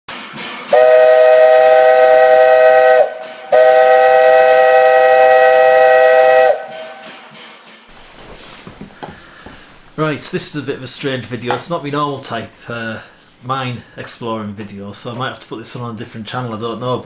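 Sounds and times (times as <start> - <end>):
air hiss: 0.1 - 8.0
locomotive chime whistle: 0.7 - 7.2.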